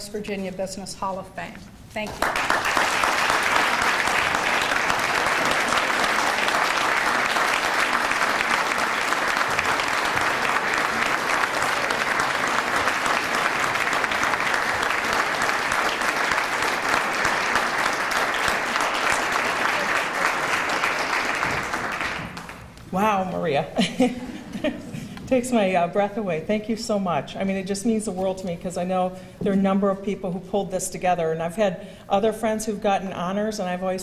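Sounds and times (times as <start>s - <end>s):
audience applauding: 2.0s - 22.8s.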